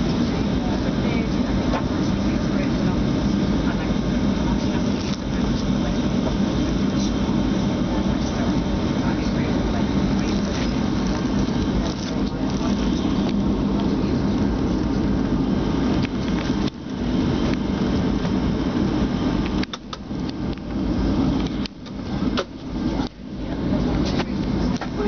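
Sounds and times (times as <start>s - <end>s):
jet engine hum in cabin: 0.0s - 25.0s.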